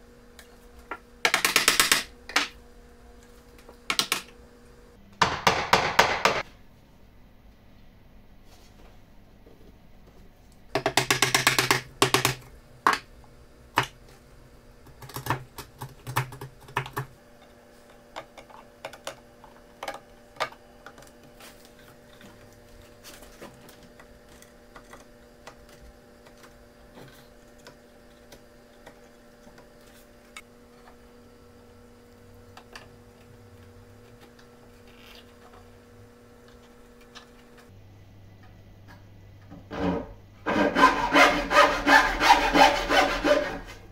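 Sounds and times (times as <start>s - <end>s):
faint steady hum: 0.0s - 43.9s
tools knocking on wooden workbench: 5.2s - 6.4s.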